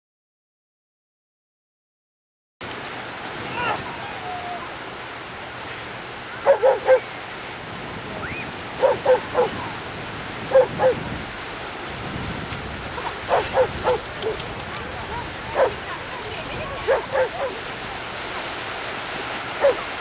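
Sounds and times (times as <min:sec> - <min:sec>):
surf rushing: 0:02.6 - 0:20.0
dog barking: 0:06.4 - 0:07.1, 0:08.8 - 0:09.6, 0:10.5 - 0:11.0, 0:13.2 - 0:14.4, 0:15.5 - 0:15.8, 0:16.8 - 0:17.6, 0:19.6 - 0:19.9.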